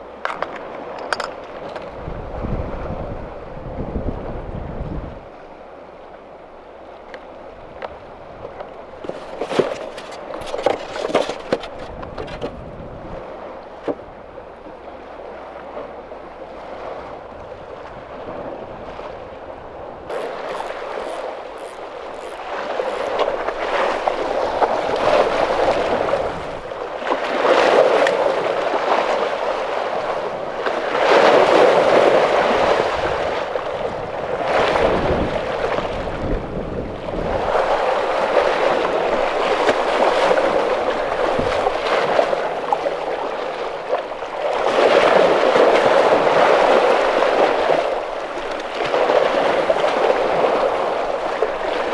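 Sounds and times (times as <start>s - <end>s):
waves splashing against rocks: 19.8s - 51.9s.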